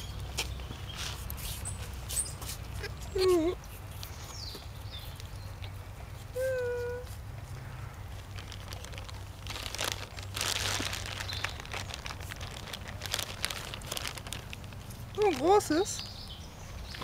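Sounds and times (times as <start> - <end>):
paper crinkling and rustling: 8.1 - 16.0.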